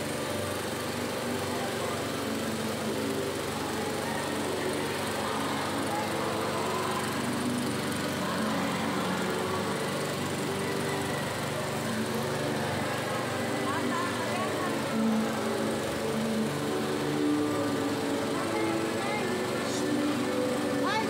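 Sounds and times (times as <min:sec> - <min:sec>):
small engine droning: 0:00.0 - 0:21.0
people talking: 0:11.8 - 0:21.0.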